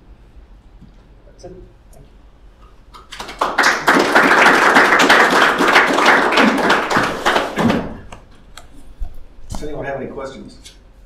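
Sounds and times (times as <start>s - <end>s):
audience applauding: 3.0s - 8.1s.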